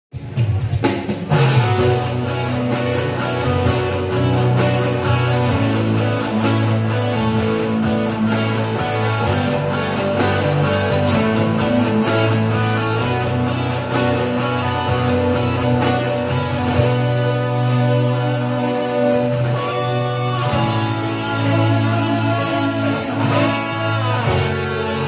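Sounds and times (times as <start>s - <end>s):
pop song guitar over a beat: 1.4s - 25.0s.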